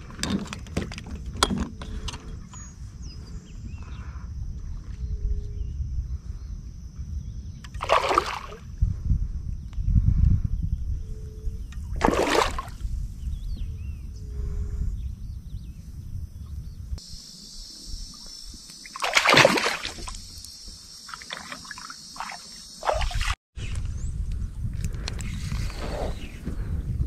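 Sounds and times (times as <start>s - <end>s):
wind rumble on microphone: 0.0s - 17.1s, 23.0s - 27.0s
fish splashing in water: 7.8s - 8.6s, 12.0s - 12.8s, 18.8s - 20.2s, 21.1s - 23.4s
steady high hiss: 17.0s - 19.0s.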